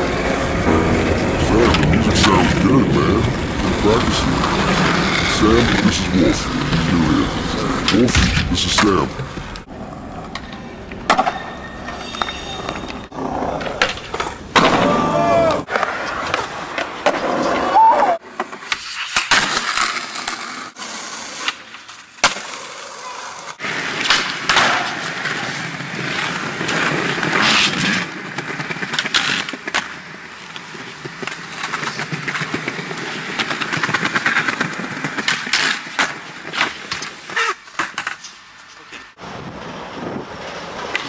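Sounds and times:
skateboard wheels rolling on concrete: 0:00.0 - 0:41.0
skateboard clacks: 0:03.2 - 0:17.7, 0:21.4 - 0:38.7.

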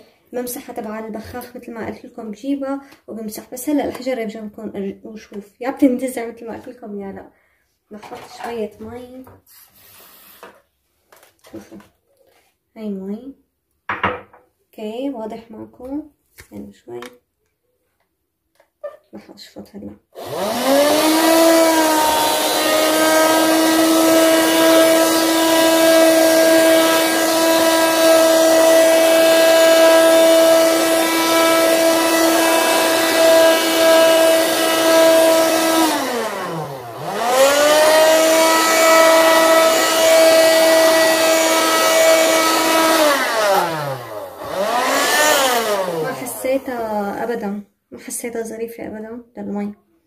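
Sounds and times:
vacuum cleaner motor whining: 0:20.2 - 0:47.1.

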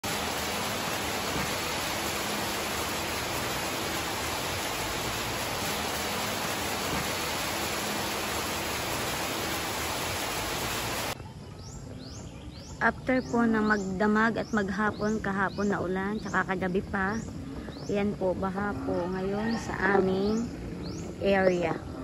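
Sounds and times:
heavy rain pouring: 0:00.0 - 0:11.2.

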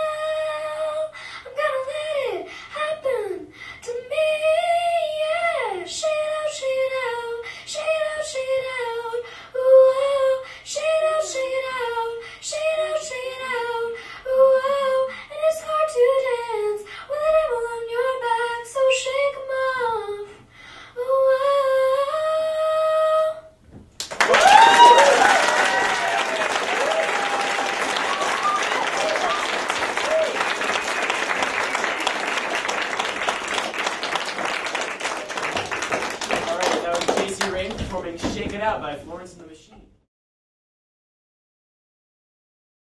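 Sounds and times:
girl singing a cappella: 0:00.0 - 0:23.6.

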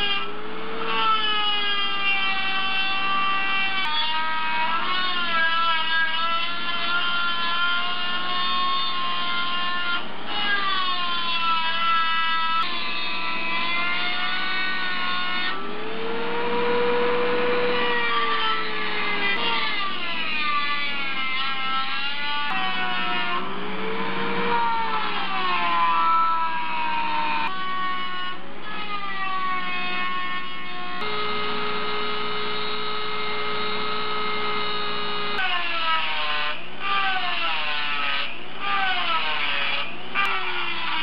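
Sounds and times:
rotary tool grinding metal: 0:11.3 - 0:23.4, 0:31.0 - 0:37.8.

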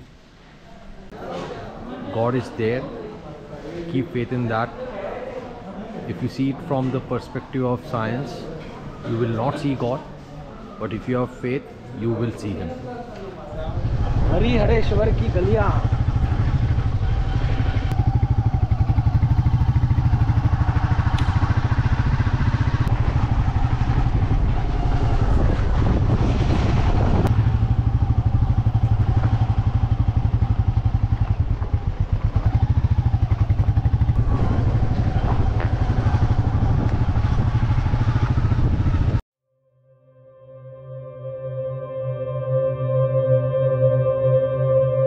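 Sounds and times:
motorcycle engine running: 0:13.6 - 0:39.2.

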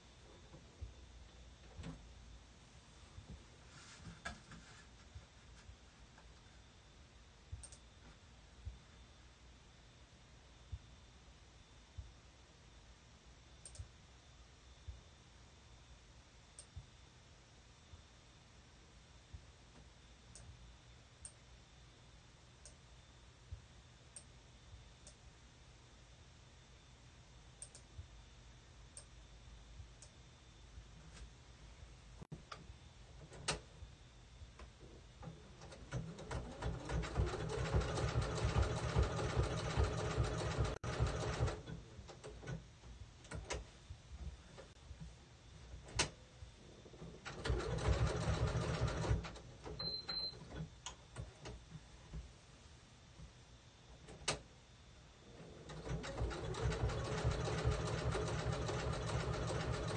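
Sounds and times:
sewing machine stitching: 0:35.6 - 0:41.8, 0:47.0 - 0:49.4, 0:55.4 - 0:59.9.

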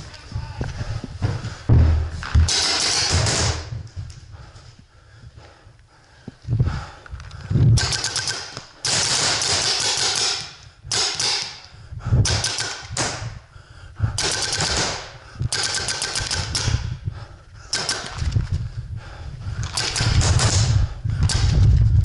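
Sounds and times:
paintball marker firing bursts: 0:07.8 - 0:11.7, 0:12.3 - 0:13.3, 0:14.2 - 0:16.9, 0:17.7 - 0:18.3, 0:19.7 - 0:21.6.

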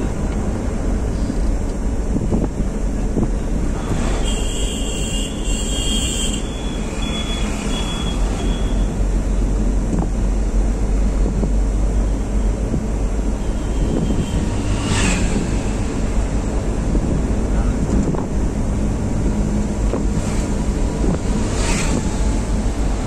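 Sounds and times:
car engine and road noise: 0:00.0 - 0:23.0.

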